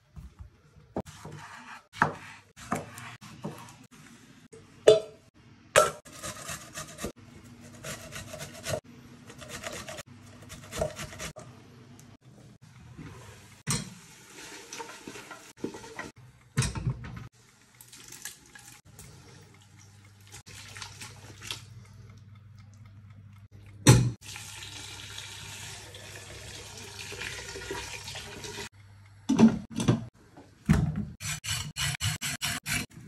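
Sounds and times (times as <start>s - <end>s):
water running into metal pot: 24.2s - 28.7s.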